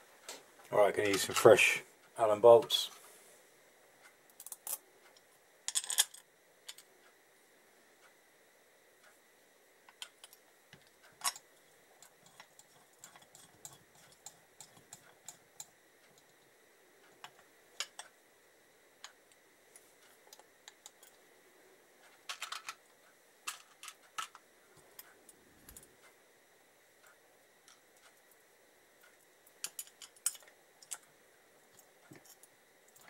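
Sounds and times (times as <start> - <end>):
metal parts clicking and clinking: 5.7 - 6.8, 22.3 - 22.8, 23.5 - 24.4, 29.6 - 31.0.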